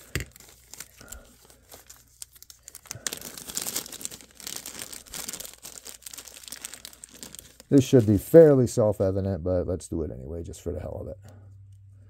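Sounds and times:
bag crinkling and rustling: 0.0s - 8.5s.

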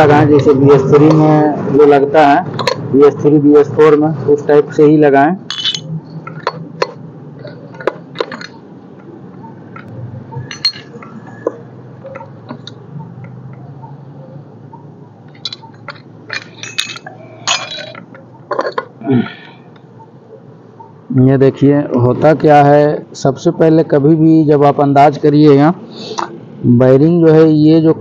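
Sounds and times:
metal gears clinking: 9.8s - 11.1s, 15.3s - 18.8s.

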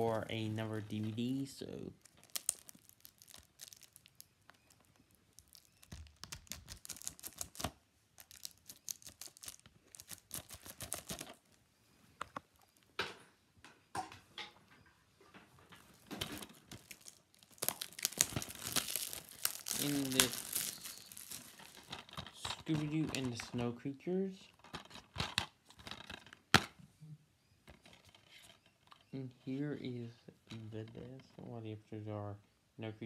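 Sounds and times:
packaging tearing and crinkling: 2.0s - 11.5s, 16.2s - 23.4s.

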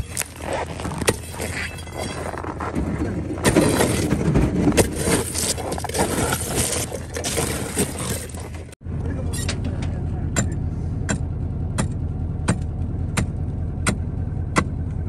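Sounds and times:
ice and snow crunching and cracking: 0.0s - 8.8s
steady low rumble: 0.0s - 15.0s.

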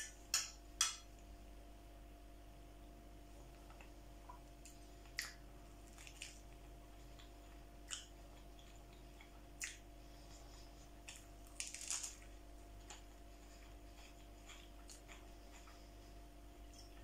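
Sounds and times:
lettuce leaf crackling: 11.1s - 12.3s.

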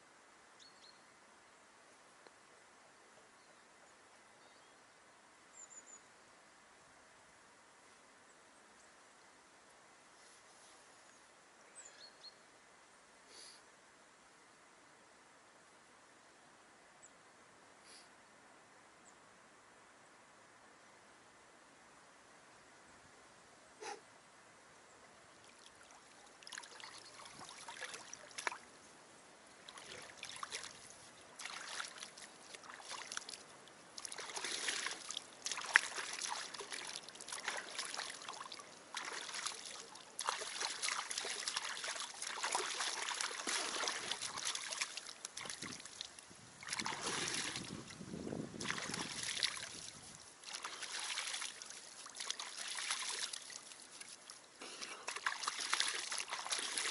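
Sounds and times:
river water splashing: 25.3s - 56.9s.

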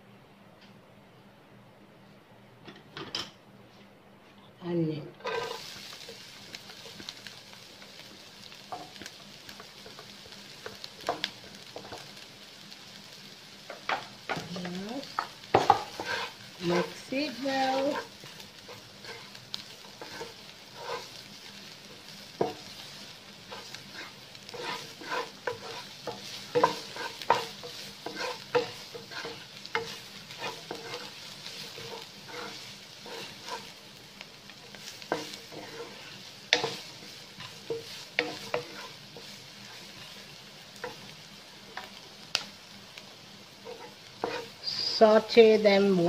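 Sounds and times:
onions sizzling in oil: 4.7s - 46.0s
wooden spatula scraping a pan: 5.2s - 7.0s, 13.9s - 33.8s, 34.6s - 41.1s, 43.6s - 45.1s.

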